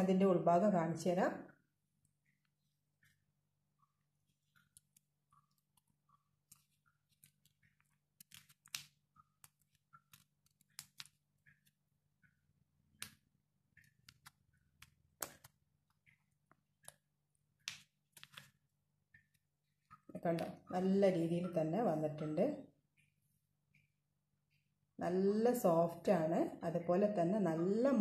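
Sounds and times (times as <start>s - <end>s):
paper liner crinkling: 4.2s - 12.1s, 13.0s - 20.0s.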